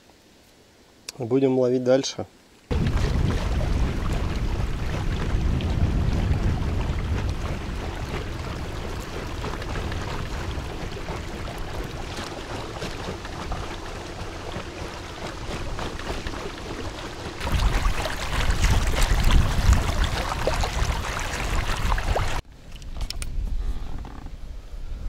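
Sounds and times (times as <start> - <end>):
storm wind buffeting microphone: 2.7 - 12.2, 16.8 - 22.4.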